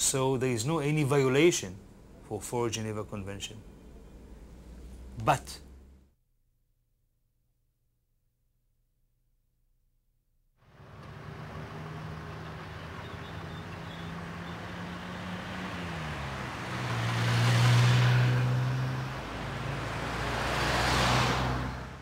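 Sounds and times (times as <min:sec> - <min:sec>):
car engines at low speed: 0:03.6 - 0:06.1, 0:10.6 - 0:22.0
van passing close: 0:10.7 - 0:22.0
vehicle passing: 0:10.7 - 0:22.0.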